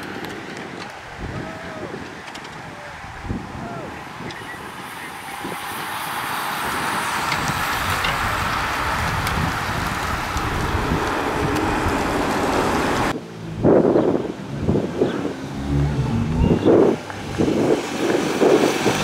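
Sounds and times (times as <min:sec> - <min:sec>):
bicycle tyres whirring on asphalt: 0:00.0 - 0:19.0.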